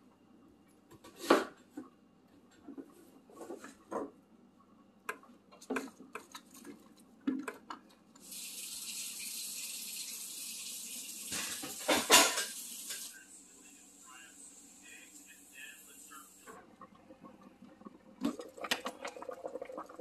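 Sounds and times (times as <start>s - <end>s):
steady hiss: 8.2s - 16.6s
can and dishes knocking: 11.3s - 12.6s
pot clattering: 11.3s - 13.1s.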